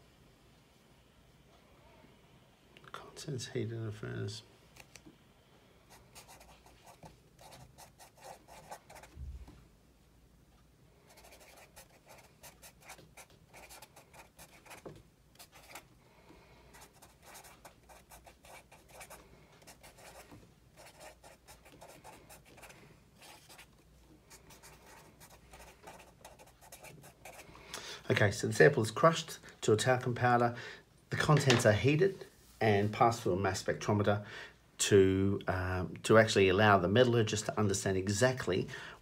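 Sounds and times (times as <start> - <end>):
marker scratching on paper: 6.1 - 9.2, 11.1 - 15.8, 16.8 - 23.7, 24.4 - 27.4.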